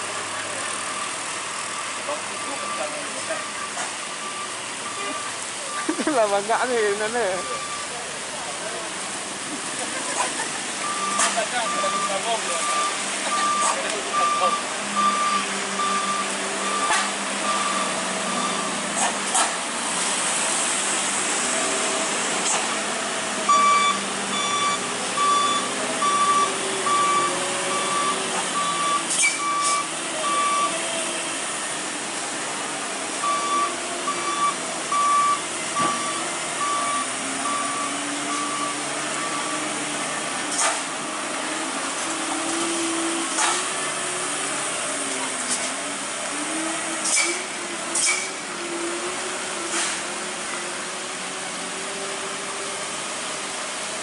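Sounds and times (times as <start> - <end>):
truck reversing beeper: 0.0 - 8.1, 9.8 - 19.1, 22.7 - 31.9, 33.1 - 40.6, 42.4 - 44.6
diesel trucks labouring uphill: 0.0 - 54.0
rain hissing: 15.4 - 23.4.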